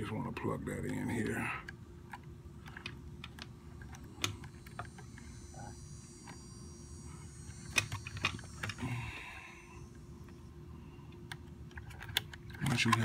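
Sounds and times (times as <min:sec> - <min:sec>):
faint steady hum: 0:00.0 - 0:13.0
wires and connectors clicking: 0:00.3 - 0:05.3, 0:11.1 - 0:13.0.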